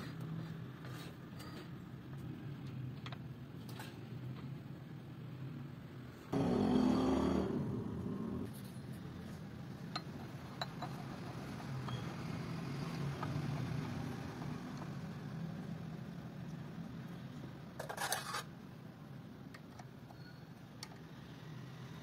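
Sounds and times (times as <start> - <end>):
loud rough noise: 6.4 - 8.5.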